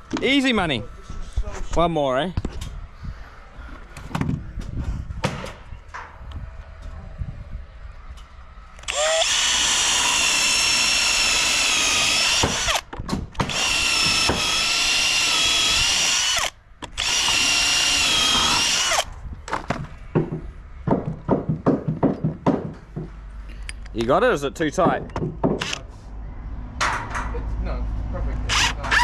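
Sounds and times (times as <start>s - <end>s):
power drill boring into timber: 8.9s - 12.8s, 13.4s - 19.1s, 28.5s - 29.0s
irregular knocks: 19.5s - 23.2s, 24.8s - 25.6s.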